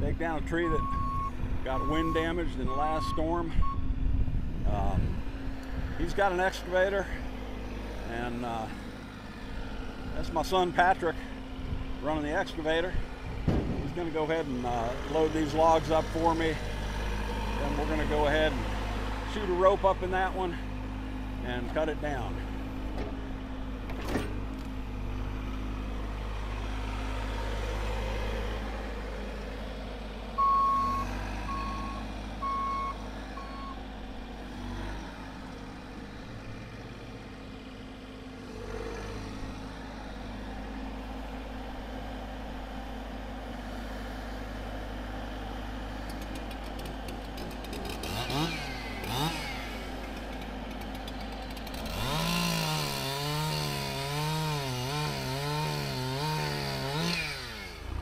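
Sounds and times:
diesel engine running: 0:00.0 - 0:58.0
alarm beeps: 0:00.7 - 0:03.9, 0:30.4 - 0:33.8
chainsaw revving: 0:13.9 - 0:20.7, 0:46.0 - 0:58.0.

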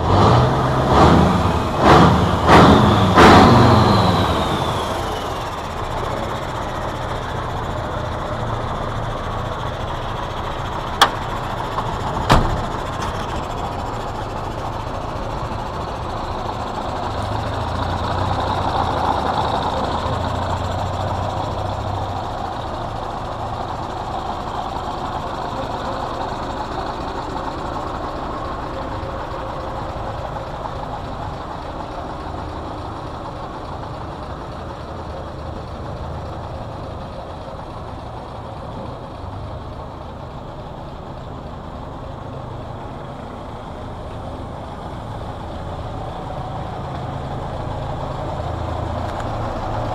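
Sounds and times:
diesel engine idling: 0:00.0 - 0:49.9
sharp knock: 0:12.3 - 0:12.8.

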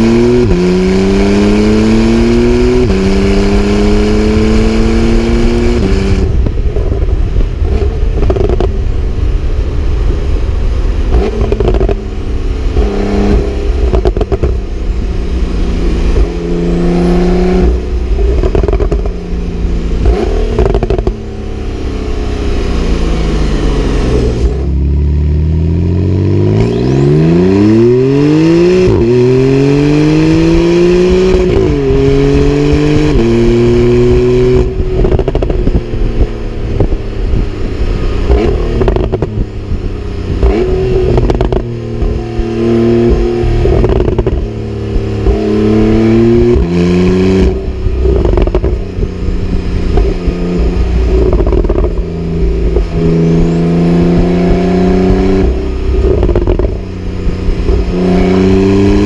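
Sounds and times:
car engine revving: 0:00.0 - 0:59.0
exhaust crackles and pops: 0:05.5 - 0:09.1, 0:11.0 - 0:12.0, 0:12.7 - 0:14.7, 0:17.6 - 0:19.2, 0:19.9 - 0:21.2, 0:34.4 - 0:59.0.

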